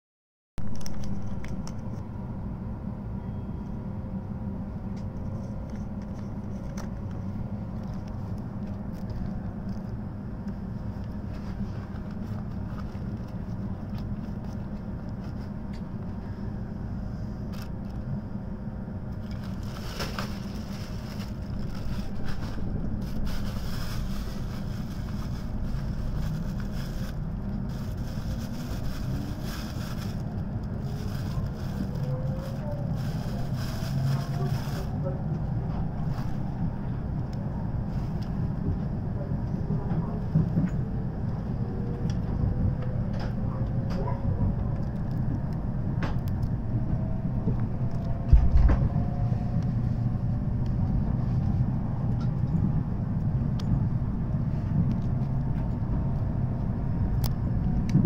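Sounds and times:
train cabin hum: 0:00.6 - 0:58.0.

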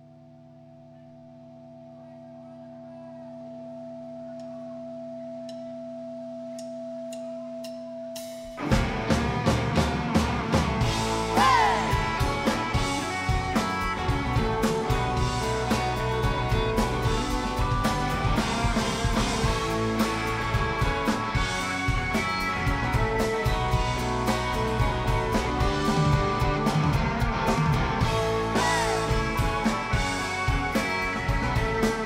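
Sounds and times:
live rock band: 0:08.2 - 0:32.0
lead guitar bending notes: 0:08.6 - 0:32.0.

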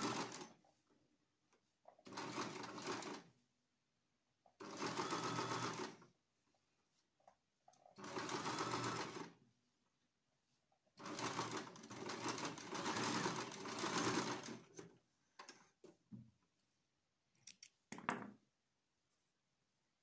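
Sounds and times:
sewing machine stitching: 0:00.0 - 0:00.6, 0:02.0 - 0:03.3, 0:04.6 - 0:06.0, 0:07.9 - 0:09.4, 0:11.0 - 0:15.7.

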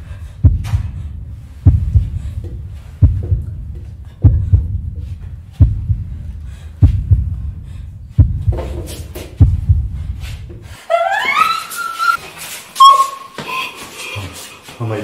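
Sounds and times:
heartbeat double thud: 0:00.0 - 0:10.8.

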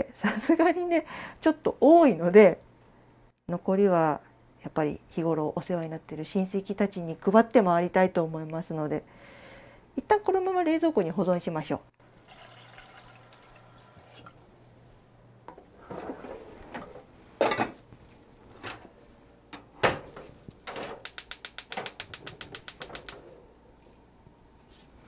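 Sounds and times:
tap water running into saucepan: 0:12.2 - 0:14.4
gas stove igniter clicking: 0:21.0 - 0:23.2.

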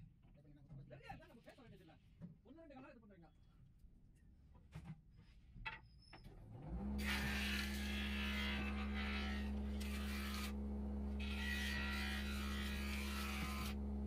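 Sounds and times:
lathe motor whining: 0:06.6 - 0:14.0
chisel scraping spinning wood: 0:07.0 - 0:13.8.

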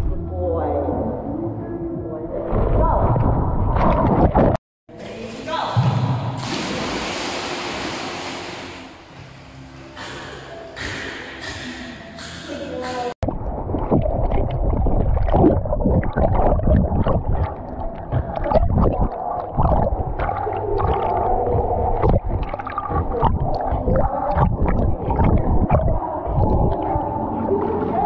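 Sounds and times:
water splashing and gurgling: 0:05.2 - 0:09.6, 0:13.2 - 0:28.0.

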